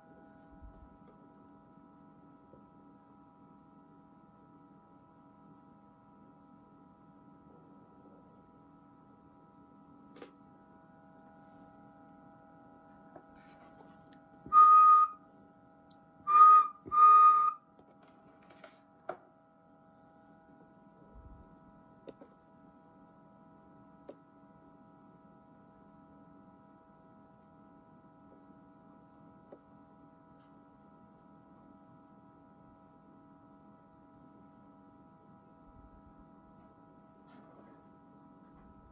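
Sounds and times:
high whistle-like tones: 14.5 - 15.2, 16.3 - 17.6.

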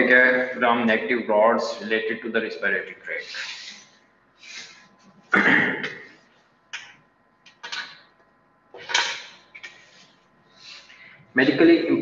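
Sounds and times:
man breathing and sniffing: 3.3 - 5.3, 9.6 - 11.3.

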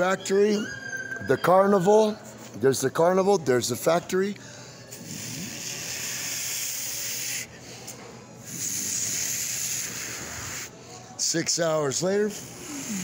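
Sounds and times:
person hissing shh: 4.9 - 11.1, 12.3 - 13.0.

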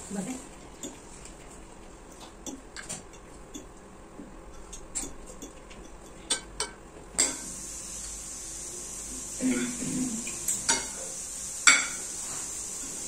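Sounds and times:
cutlery clinking on ceramic dishes: 9.5 - 9.8.

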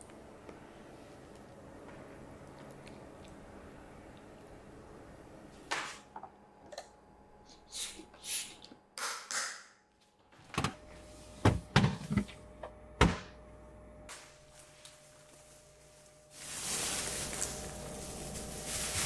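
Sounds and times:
faint steady hum: 0.0 - 9.0, 10.0 - 19.0
soft rustles: 14.5 - 19.0.

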